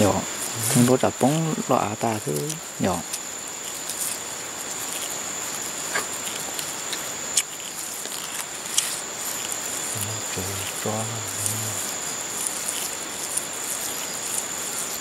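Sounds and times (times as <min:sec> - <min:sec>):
high-pitched insect trill: 0:00.0 - 0:15.0.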